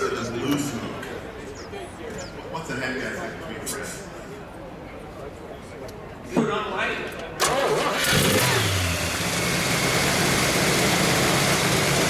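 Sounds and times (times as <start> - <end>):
car engine starting and idling: 7.4 - 12.0.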